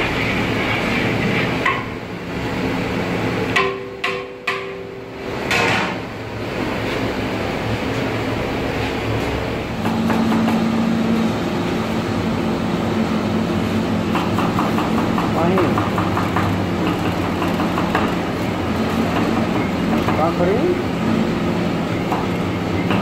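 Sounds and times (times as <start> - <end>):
sharp metallic knocks: 3.5 - 6.0.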